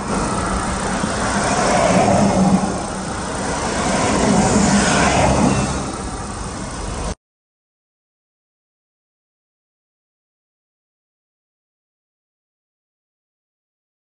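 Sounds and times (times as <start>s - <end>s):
passing cars: 0.0s - 7.2s.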